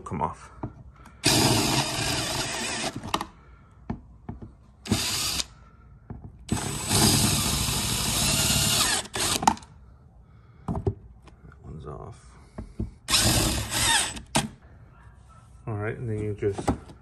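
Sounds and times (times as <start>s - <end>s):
power drill boring through metal: 1.2s - 3.2s, 4.9s - 5.5s, 6.5s - 9.6s, 13.1s - 14.5s.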